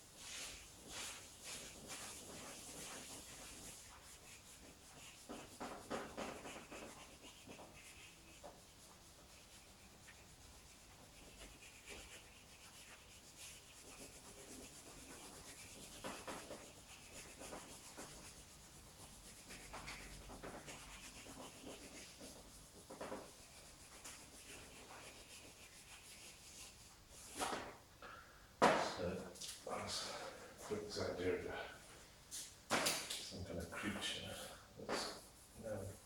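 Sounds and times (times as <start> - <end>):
charcoal scratching on paper: 0.2 - 27.6, 35.0 - 36.0.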